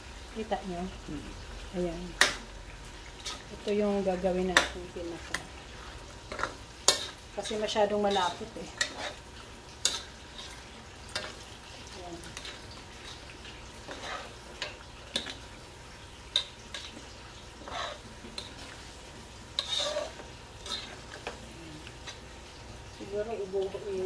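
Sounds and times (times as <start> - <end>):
sauce sizzling faintly: 0.0 - 24.0
metal ladle clinking and scraping pan: 6.3 - 9.2, 9.8 - 11.4, 12.3 - 15.4, 17.6 - 18.7, 19.6 - 21.4.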